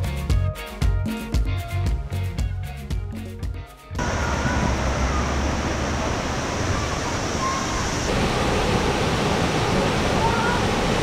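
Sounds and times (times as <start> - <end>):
water rushing over rocks: 4.0 - 11.0.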